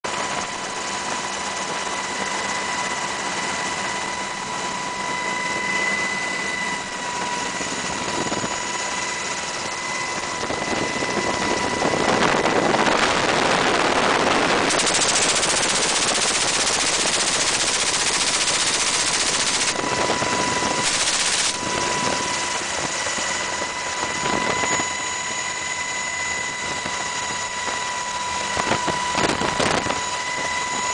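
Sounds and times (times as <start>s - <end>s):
helicopter high whine: 0.0s - 30.9s
machine gun firing bursts: 14.7s - 19.8s, 20.8s - 21.6s.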